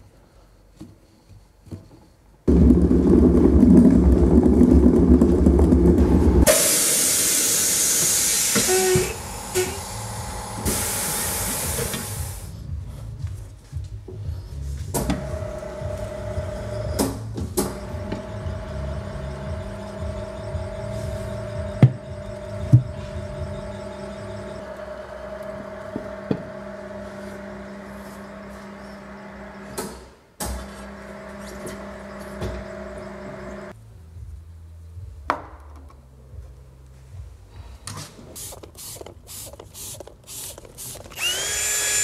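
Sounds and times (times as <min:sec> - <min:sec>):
steady mechanical hum: 0:00.0 - 0:35.3
aerosol spraying hiss: 0:06.5 - 0:12.5, 0:38.3 - 0:41.0.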